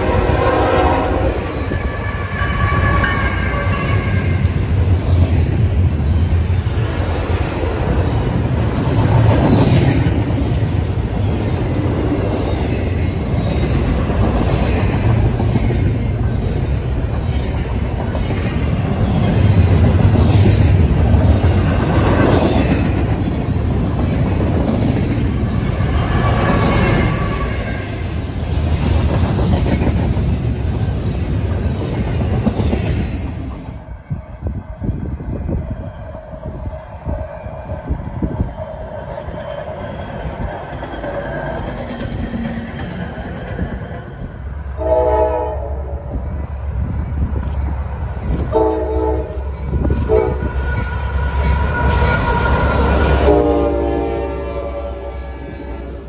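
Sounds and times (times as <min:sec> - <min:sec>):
train wheels rumbling on rail: 0:00.0 - 0:56.0
train wheels squealing: 0:01.4 - 0:04.5, 0:25.5 - 0:28.1, 0:35.7 - 0:44.6, 0:49.7 - 0:55.8
train cars clattering and clanking: 0:01.4 - 0:33.8, 0:35.5 - 0:44.8, 0:46.1 - 0:54.1.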